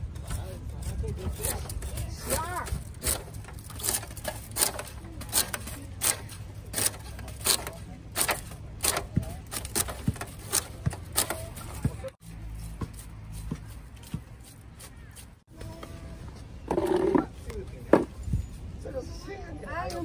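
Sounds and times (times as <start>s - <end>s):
blade scraping sugarcane: 0.8s - 15.4s.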